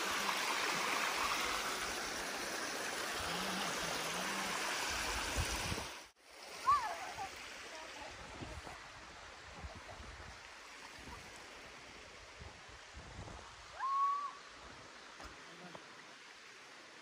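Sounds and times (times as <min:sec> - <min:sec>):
creek water trickling over rocks: 0:00.0 - 0:13.8
rising whistle: 0:13.8 - 0:14.4.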